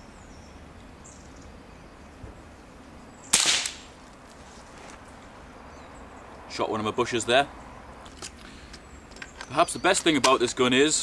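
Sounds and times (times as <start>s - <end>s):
silenced rifle shot: 3.3s - 4.0s.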